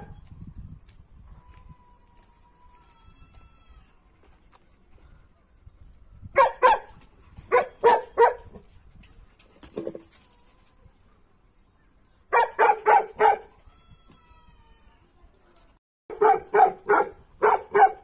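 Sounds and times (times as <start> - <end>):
dog barking: 6.4 - 6.9, 7.5 - 8.6, 12.3 - 13.5, 16.1 - 18.0.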